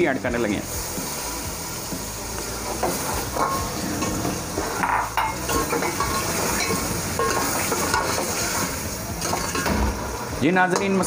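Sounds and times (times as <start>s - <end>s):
curry sizzling: 0.0s - 11.0s
ladle clinking and scraping pot: 2.7s - 9.8s.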